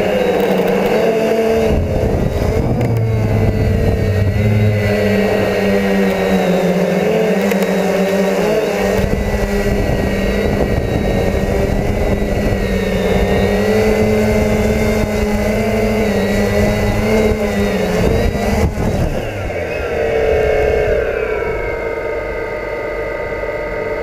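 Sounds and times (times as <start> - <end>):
drone propellers whining: 0.0 - 24.0.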